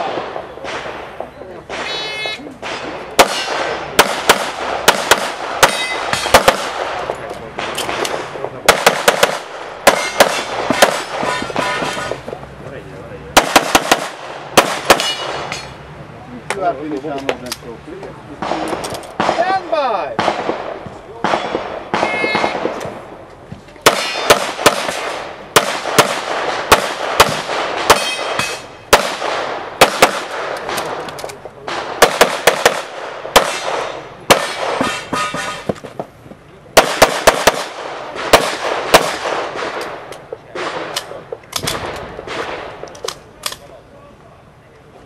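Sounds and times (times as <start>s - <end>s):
pistol shots: 2.6s - 12.3s, 13.4s - 15.7s, 18.4s - 23.0s, 23.8s - 35.7s, 36.8s - 43.6s.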